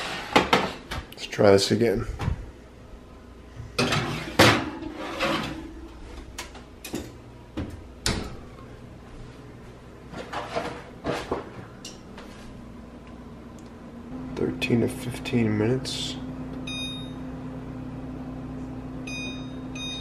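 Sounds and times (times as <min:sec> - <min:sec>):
oven rack sliding: 0:00.0 - 0:00.9, 0:03.8 - 0:06.4.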